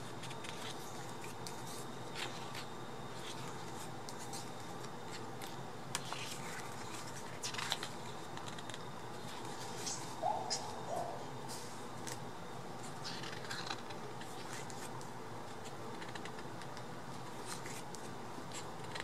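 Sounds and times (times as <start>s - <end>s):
book pages turning: 0.0s - 10.8s, 12.8s - 19.0s.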